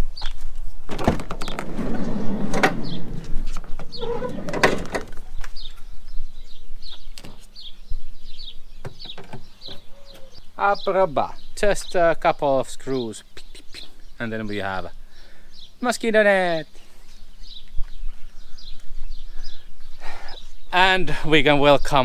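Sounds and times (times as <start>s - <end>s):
bird chirping: 0.0s - 22.0s
screen frame scraping and rattling: 0.9s - 5.3s.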